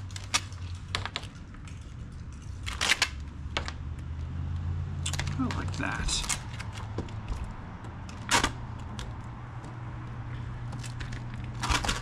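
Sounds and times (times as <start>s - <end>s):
plastic film crinkling: 10.8s - 12.0s.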